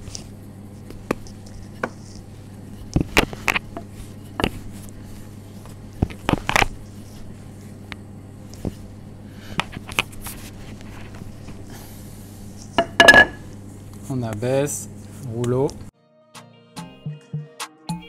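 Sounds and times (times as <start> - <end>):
rolling pin knocking on stone worktop: 12.8 - 13.4.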